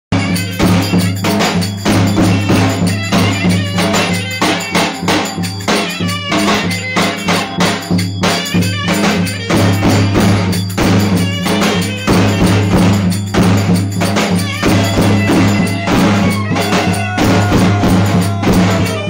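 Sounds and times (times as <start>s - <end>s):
bass drum beating dance rhythm: 0.1s - 19.0s
wooden clappers clacking: 0.4s - 19.0s.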